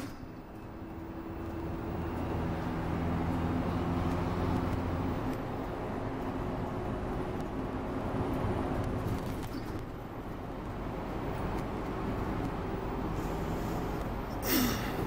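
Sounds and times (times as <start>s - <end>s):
bus engine and road rumble: 0.0s - 15.0s
brief loud hiss: 14.4s - 15.0s.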